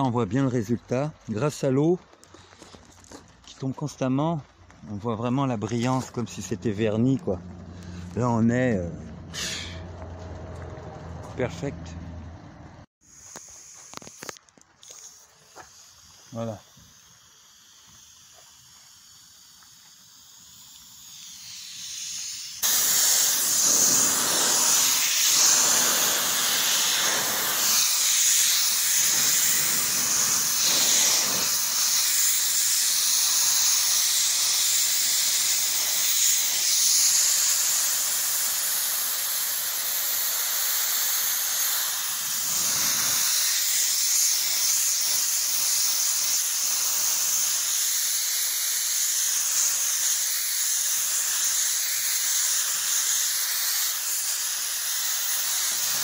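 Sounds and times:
compressed air gun hissing: 9.3s - 9.9s, 13.0s - 56.0s.

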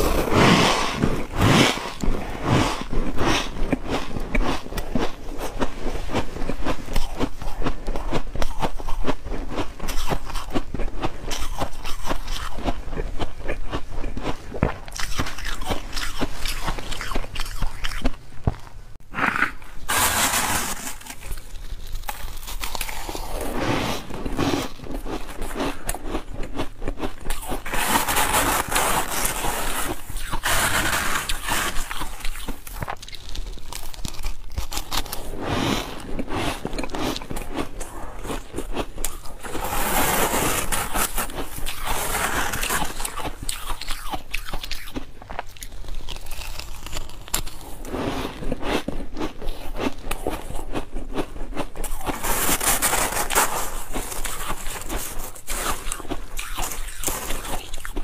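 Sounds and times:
crunching and chewing ice: 0.0s - 18.8s, 19.4s - 58.0s
metal spoon scooping frost: 19.5s - 26.0s, 27.2s - 33.3s, 34.8s - 43.9s.

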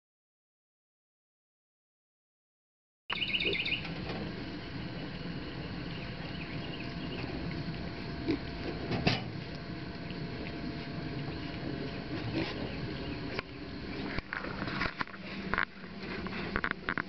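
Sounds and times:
high chirps: 3.1s - 3.9s
piglets grunting: 7.9s - 9.0s, 10.2s - 13.3s.

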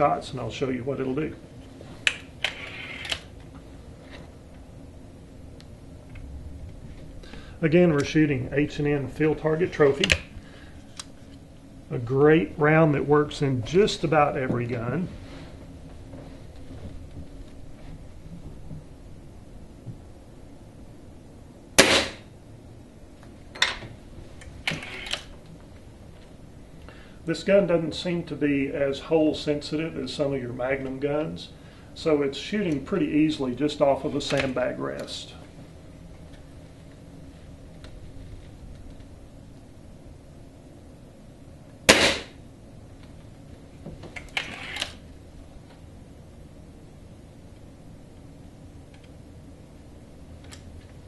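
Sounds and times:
air rifle shot: 21.8s - 22.3s, 41.9s - 42.4s.

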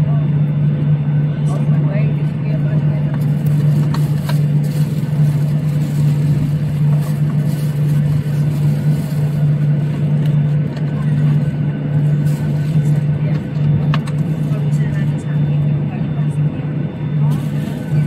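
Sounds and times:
airplane cabin noise in flight: 0.0s - 18.0s.

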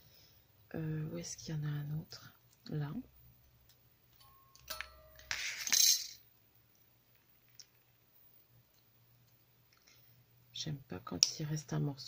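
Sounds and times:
metal clinking: 4.2s - 6.2s
metal pieces clattering: 5.2s - 6.2s.

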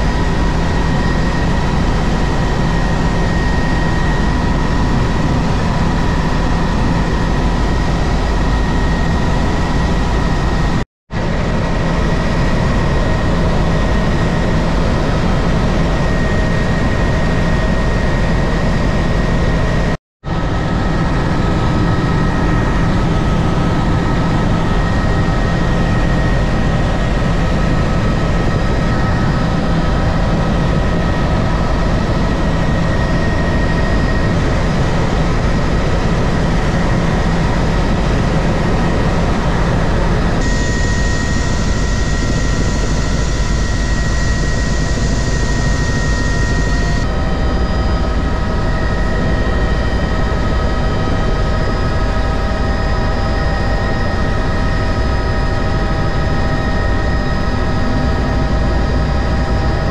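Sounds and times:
helicopter engine and rotor drone: 0.0s - 59.9s
steady whining tones: 0.0s - 59.9s.

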